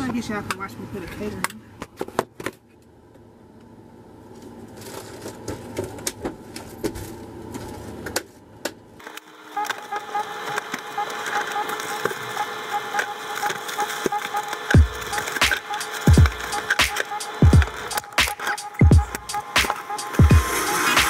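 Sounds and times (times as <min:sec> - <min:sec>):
music with quick steady beat: 0:14.0 - 0:21.0.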